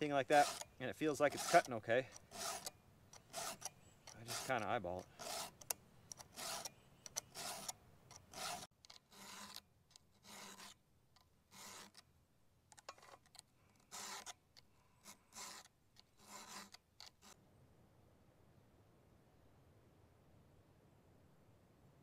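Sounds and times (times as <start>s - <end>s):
file sharpening chainsaw chain: 0.2s - 10.8s, 11.5s - 12.0s, 12.8s - 14.4s, 15.0s - 17.4s.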